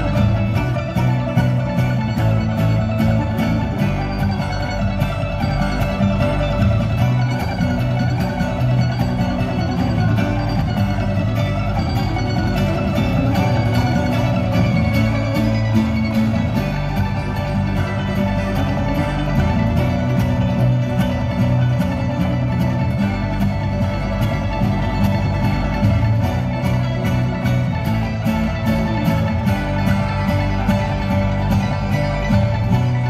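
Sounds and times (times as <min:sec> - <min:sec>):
bluegrass band playing: 0:00.0 - 0:33.0
picked banjo: 0:00.0 - 0:33.0.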